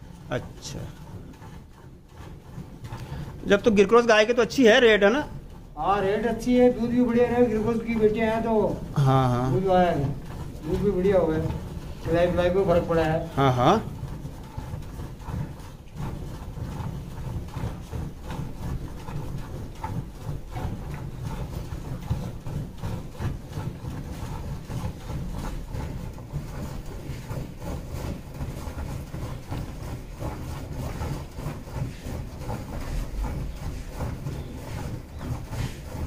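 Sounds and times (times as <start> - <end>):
milk squirting into metal bucket: 0.0 - 36.0.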